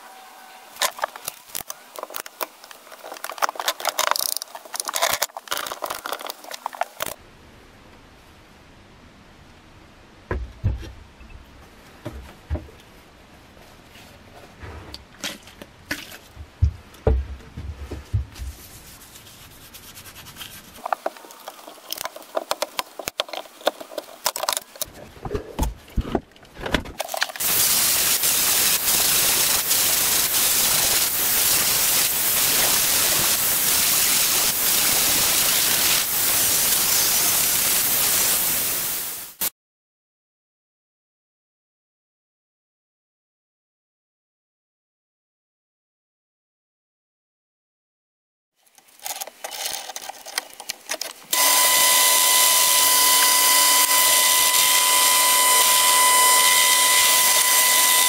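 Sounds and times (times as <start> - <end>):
power grinder grinding blade: 51.3 - 58.0.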